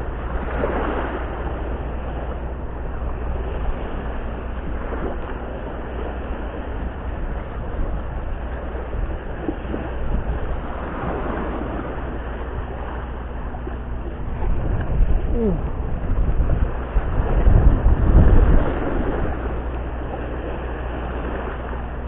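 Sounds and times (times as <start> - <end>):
waves washing against rocks: 0.0 - 22.0
wind buffeting microphone: 0.0 - 22.0.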